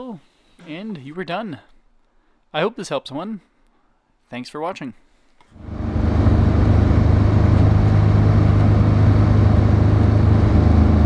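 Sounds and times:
car engine: 5.6 - 11.0
road noise: 5.6 - 11.0.

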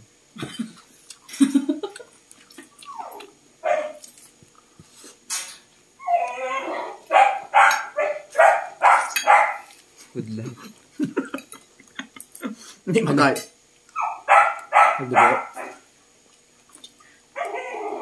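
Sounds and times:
dog barking: 3.0 - 4.0, 7.1 - 9.7, 14.0 - 15.9, 17.4 - 18.0.

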